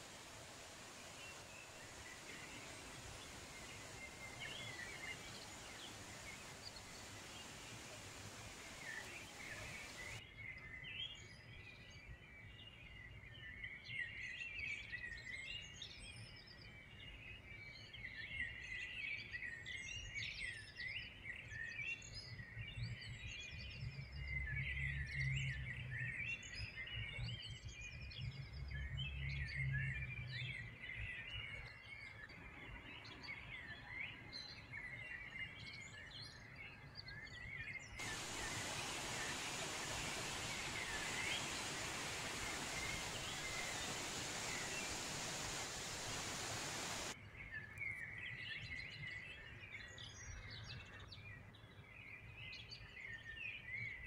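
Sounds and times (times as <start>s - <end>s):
rushing water: 0.0s - 10.2s, 38.0s - 47.2s
songbirds chirping and trilling: 0.0s - 14.2s, 23.4s - 54.0s.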